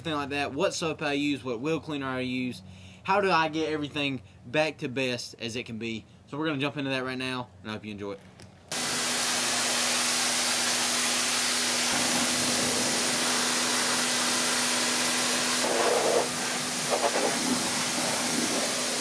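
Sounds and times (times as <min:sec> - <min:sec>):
pressure washer spraying water: 0:08.7 - 0:19.0.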